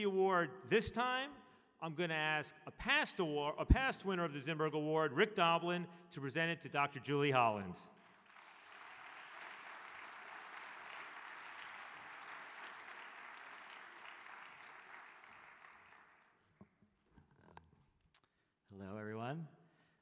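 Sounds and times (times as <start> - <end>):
audience applauding: 8.0 - 16.5.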